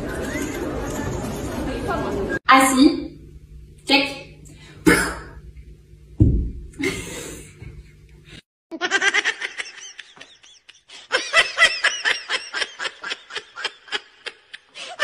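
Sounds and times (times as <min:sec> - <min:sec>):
high-pitched laughter: 0:08.7 - 0:15.0.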